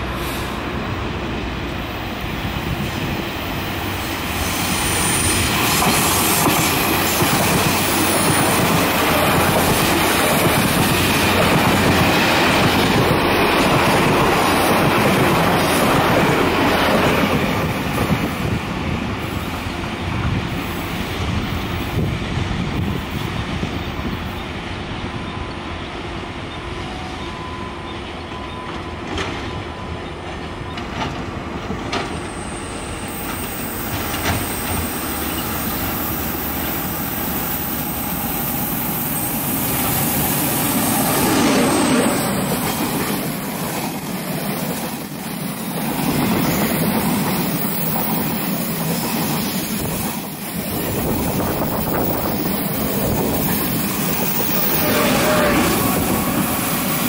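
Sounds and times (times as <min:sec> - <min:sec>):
train wheels rumbling: 0:00.0 - 0:57.0
wheels clacking over rail joints: 0:33.1 - 0:35.6.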